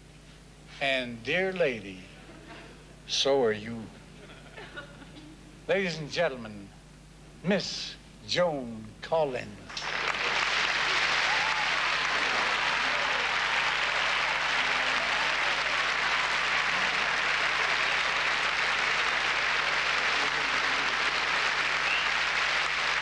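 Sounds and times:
large audience applauding: 0:09.7 - 0:23.0.

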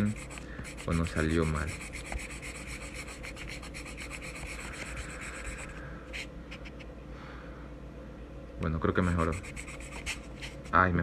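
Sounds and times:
eraser rubbing on paper: 0:00.0 - 0:06.8, 0:09.0 - 0:10.8.

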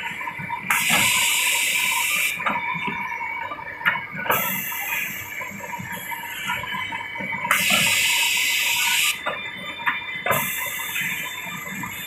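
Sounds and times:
pneumatic cylinders knocking: 0:00.7 - 0:01.4
machine running tone: 0:00.7 - 0:03.3, 0:04.4 - 0:12.0.

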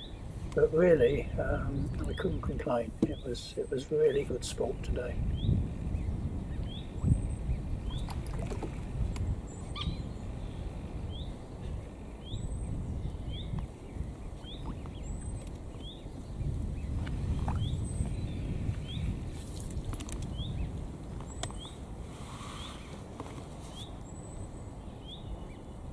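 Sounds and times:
steady low rumble: 0:00.0 - 0:22.1
small bird chirping: 0:09.1 - 0:21.8.

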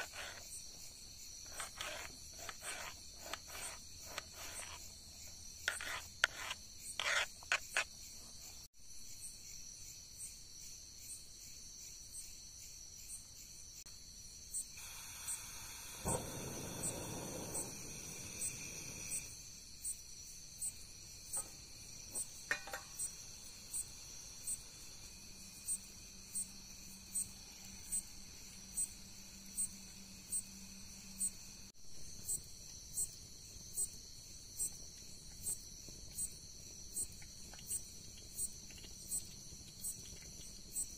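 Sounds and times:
crickets chirping: 0:00.0 - 0:40.9
high insect trill: 0:00.0 - 0:40.9
gas stove burner lighting and hissing: 0:14.8 - 0:19.4.

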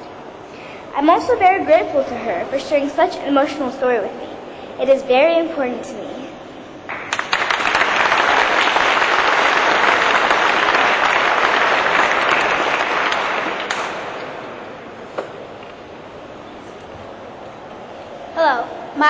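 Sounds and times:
audience applauding: 0:06.9 - 0:14.4.

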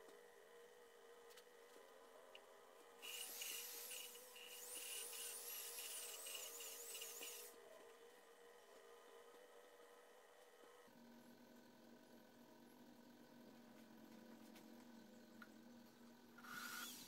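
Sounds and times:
electric drill lapping a valve: 0:03.0 - 0:07.5, 0:16.4 - 0:17.0.

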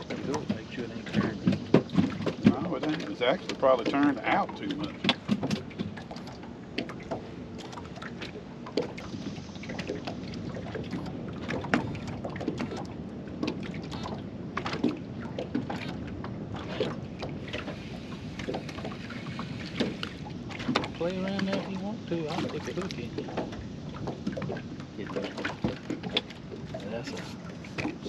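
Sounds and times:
light knocks against boat: 0:00.0 - 0:09.0, 0:19.6 - 0:28.0
water lapping at hull: 0:00.0 - 0:28.0.

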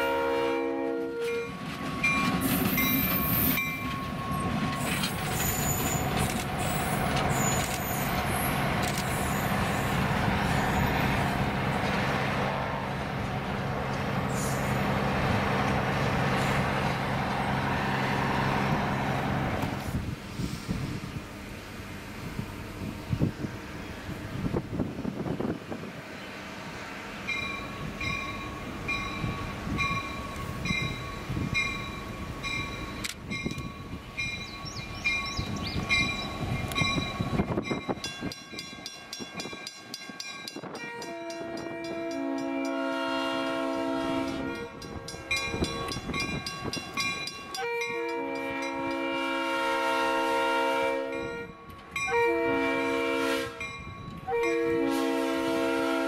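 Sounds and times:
locomotive air horn: 0:00.0 - 0:02.0, 0:40.8 - 0:44.8, 0:47.5 - 0:56.0
locomotive bell ringing: 0:01.2 - 0:06.2, 0:27.3 - 0:43.0, 0:44.2 - 0:49.1, 0:53.6 - 0:54.9.

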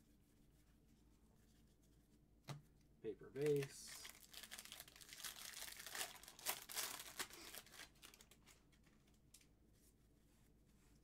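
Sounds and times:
foil wrapper crinkling and tearing: 0:03.5 - 0:09.2.

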